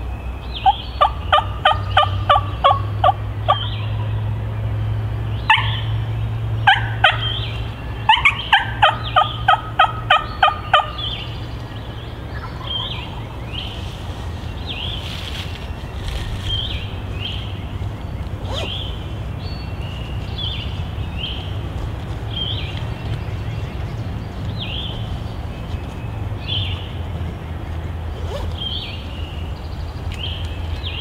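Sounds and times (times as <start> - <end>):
wild turkey yelping: 0.6 - 3.7, 5.5 - 5.9, 6.6 - 11.2, 12.3 - 13.7.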